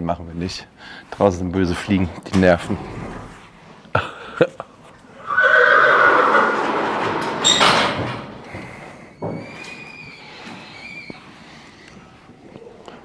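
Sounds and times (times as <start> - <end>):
horse neighing: 2.7 - 3.5, 5.1 - 7.4.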